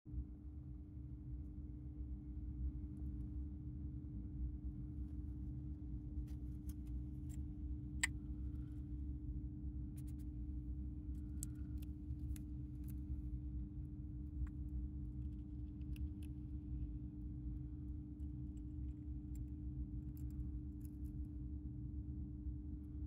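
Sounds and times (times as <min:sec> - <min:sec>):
steady low hum: 0:00.1 - 0:23.0
hamster clicking and nibbling: 0:09.9 - 0:21.3.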